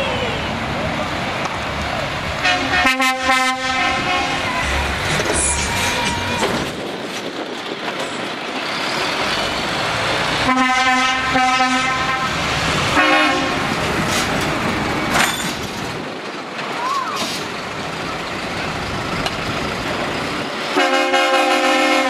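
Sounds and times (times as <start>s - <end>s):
diesel truck engines running: 0.0s - 22.0s
truck air horn blasts: 2.4s - 4.6s, 10.4s - 13.7s, 20.7s - 22.0s.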